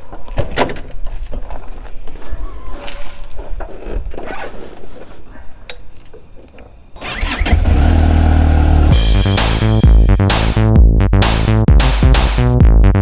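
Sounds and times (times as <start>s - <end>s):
handling clicks and knocks: 5.7s - 6.8s.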